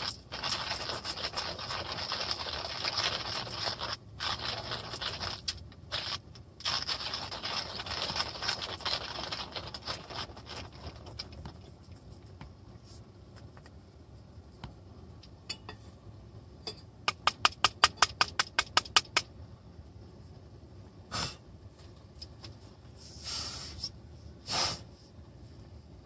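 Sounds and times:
coffee grinder crushing beans: 0.0s - 11.2s.

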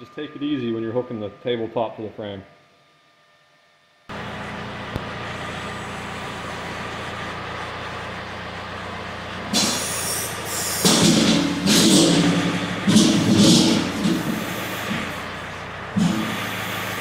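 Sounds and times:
tractor engine running: 4.1s - 17.0s
hydraulic hissing and squealing: 9.5s - 17.0s.

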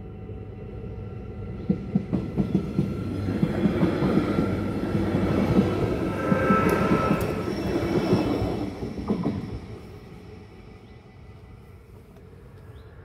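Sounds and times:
train wheels on rails: 1.6s - 12.8s
faint high squeal: 5.8s - 10.4s.

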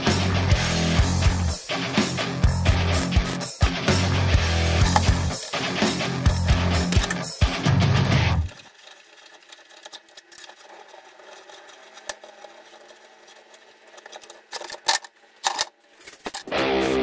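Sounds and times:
screwdriver clicking on metal jack: 14.0s - 16.5s.

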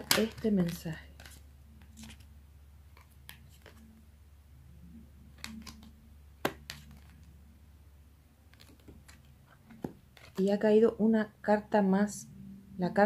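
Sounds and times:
cards being shuffled: 0.0s - 4.0s, 5.2s - 7.4s, 8.5s - 10.6s.

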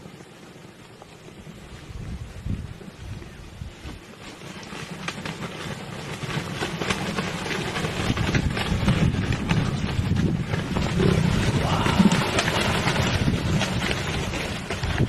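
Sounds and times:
vultures flapping wings: 0.0s - 15.0s
low rumble: 9.1s - 15.0s.

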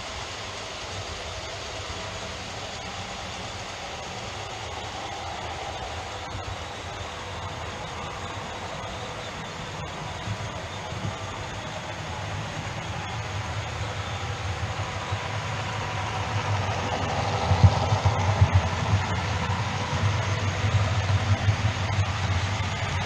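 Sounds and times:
model train rumbling on track: 0.0s - 23.0s.

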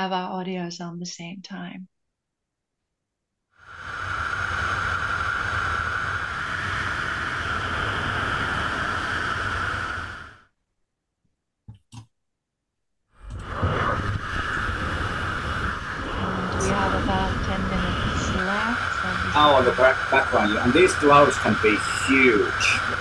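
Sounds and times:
rushing air: 3.6s - 10.4s, 13.2s - 23.0s.

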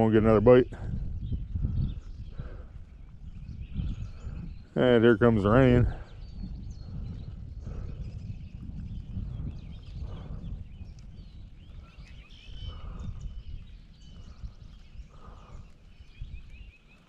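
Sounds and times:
birds chirping and singing: 0.0s - 17.0s
wind rumbling on microphone: 0.0s - 17.0s
low bird call: 6.0s - 17.0s.

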